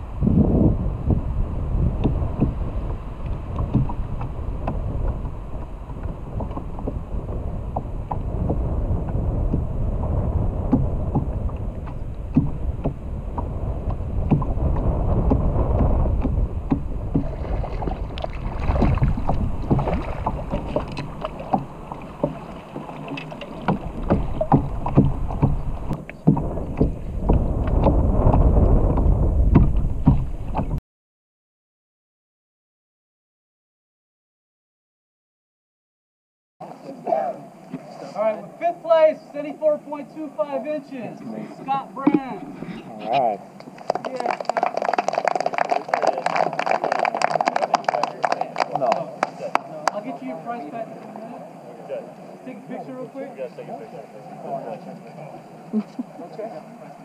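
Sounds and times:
water lapping against kayak hull: 0:00.0 - 0:30.8
wind buffeting microphone: 0:00.0 - 0:30.8.

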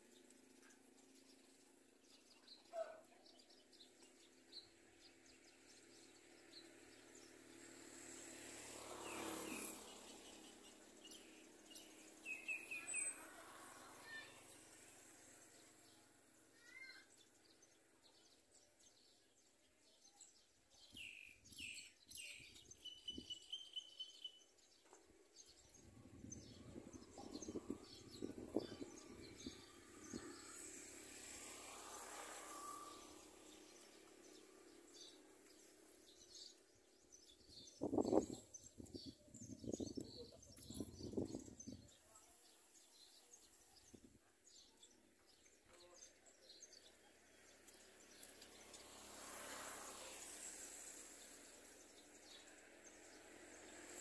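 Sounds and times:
faint bird chirps: 0:20.1 - 0:24.4.

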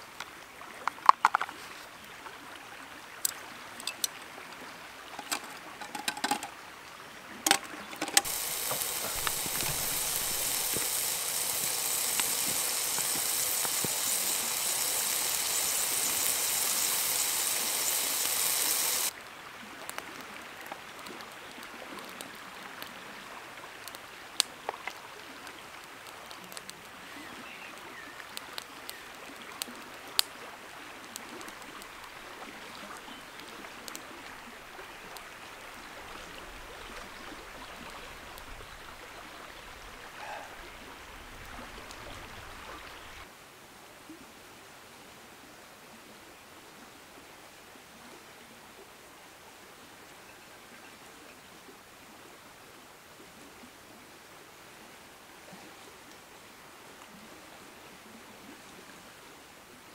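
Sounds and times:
flowing water: 0:00.0 - 0:59.9
cutlery clinking: 0:05.2 - 0:06.5
pot hissing on stove: 0:08.2 - 0:19.1.

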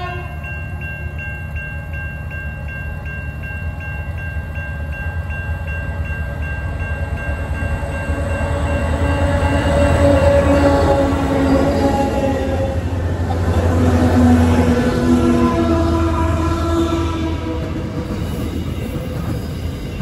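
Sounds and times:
level-crossing bell ringing: 0:00.0 - 0:10.6
diesel locomotive rumble: 0:00.0 - 0:20.0.

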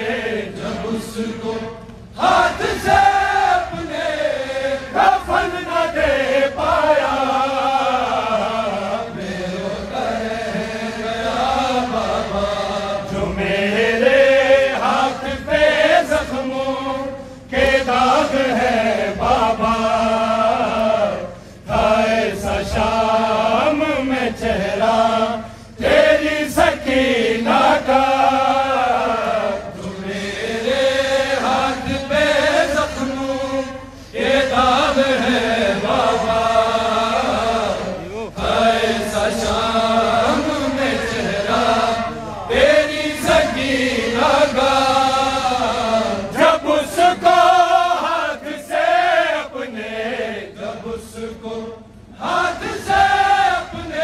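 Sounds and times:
crowd of men chanting: 0:00.0 - 0:54.0.

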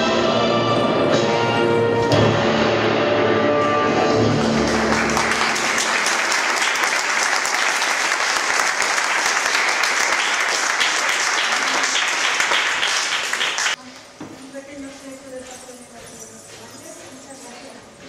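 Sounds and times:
audience applauding: 0:04.0 - 0:13.8.

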